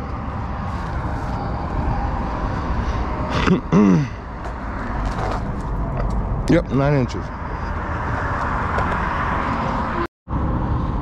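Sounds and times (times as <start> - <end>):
road traffic rumble: 0.0 - 11.0
person short vocal sound: 3.3 - 4.2.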